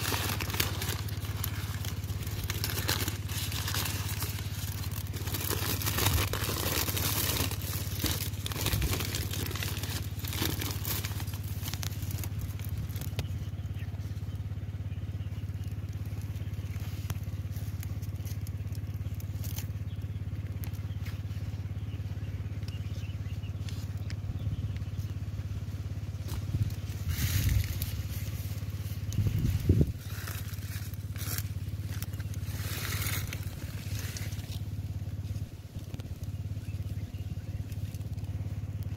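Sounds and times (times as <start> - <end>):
paper bag crinkling and rustling: 0.0 - 13.2
steady low hum: 0.0 - 38.9.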